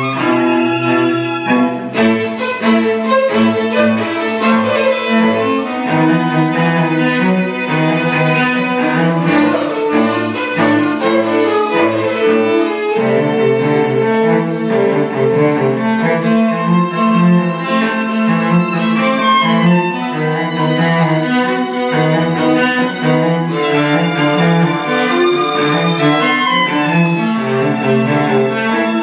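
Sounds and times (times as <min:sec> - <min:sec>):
low cello notes: 0:00.0 - 0:29.0
violin lines: 0:00.0 - 0:29.0.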